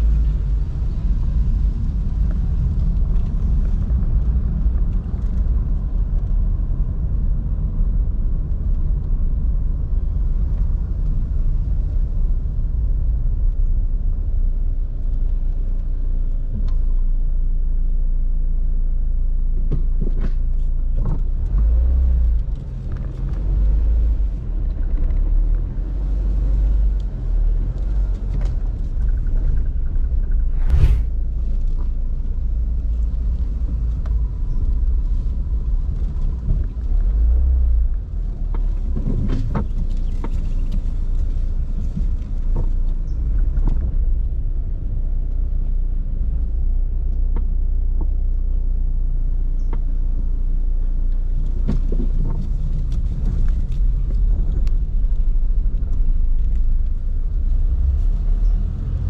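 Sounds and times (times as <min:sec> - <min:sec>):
engine and road noise: 0:00.0 - 0:59.0.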